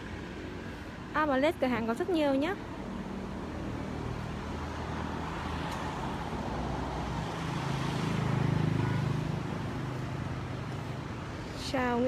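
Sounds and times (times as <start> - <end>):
road traffic: 0.0 - 12.0
vehicle engine passing: 2.6 - 11.7.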